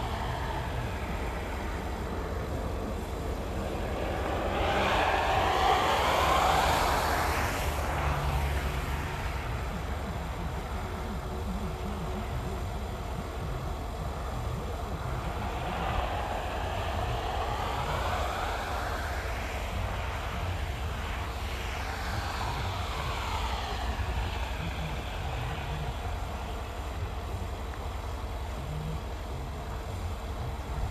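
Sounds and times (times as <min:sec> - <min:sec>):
airplane flying over: 0:00.0 - 0:30.9
steady low rumble: 0:00.0 - 0:30.9.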